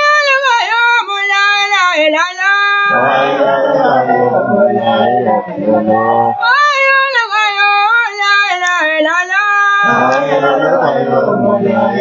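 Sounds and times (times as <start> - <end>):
high voice singing long notes: 2.6 - 12.0
men chanting together: 2.9 - 6.4, 9.8 - 12.0.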